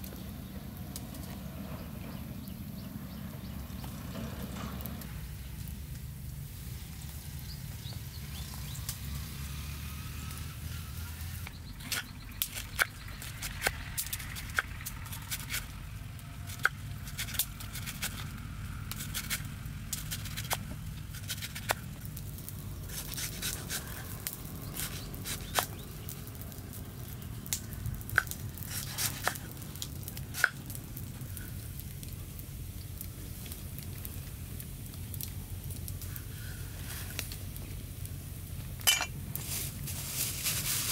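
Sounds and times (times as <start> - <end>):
steady low rumble: 11.1 - 28.8.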